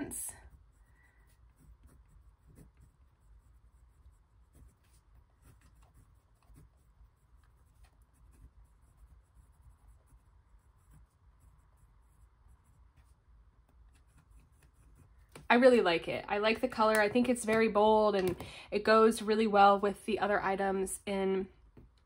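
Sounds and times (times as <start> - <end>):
pen scratching on paper: 0.3 - 15.6.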